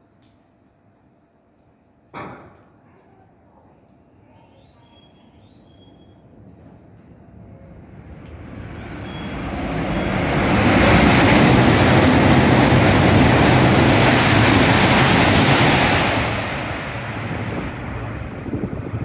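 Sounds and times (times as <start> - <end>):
train passing at speed: 6.2 - 19.0.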